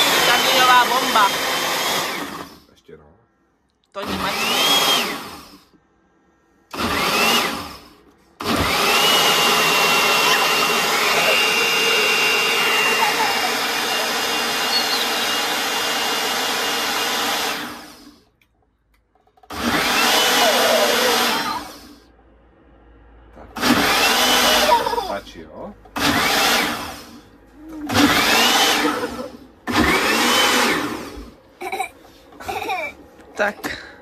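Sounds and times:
electric juicer motor whining: 0.0 - 2.7, 4.0 - 5.8, 6.7 - 18.2, 19.4 - 22.0, 23.5 - 31.4.

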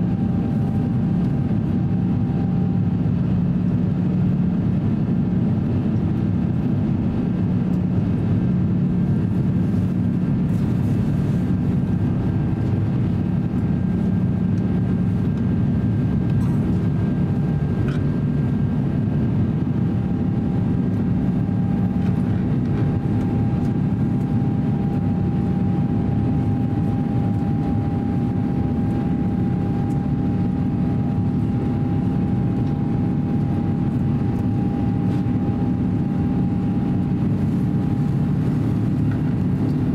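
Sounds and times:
aircraft cabin engine drone: 0.0 - 39.9
thin steady whine: 9.3 - 39.9.

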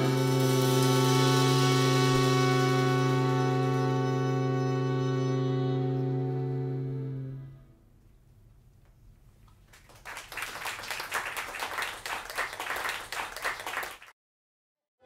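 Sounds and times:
audience applause: 9.7 - 14.1.

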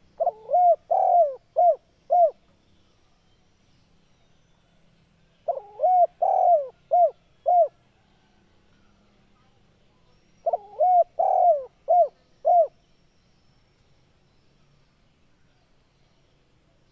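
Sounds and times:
dove cooing: 0.0 - 2.4, 5.5 - 7.8, 10.4 - 12.8.

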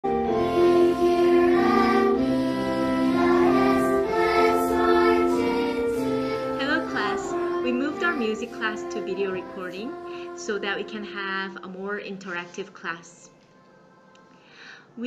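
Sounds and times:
melody of long held notes: 0.0 - 11.7.

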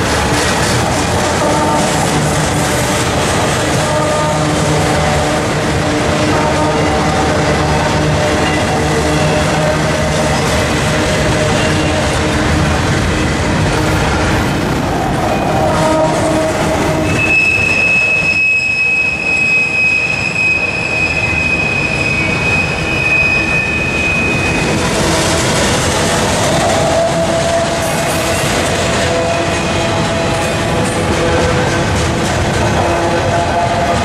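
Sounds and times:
freight train wheels rumbling on rail: 0.0 - 34.0
high-pitched metallic wheel squeal: 17.0 - 24.7.

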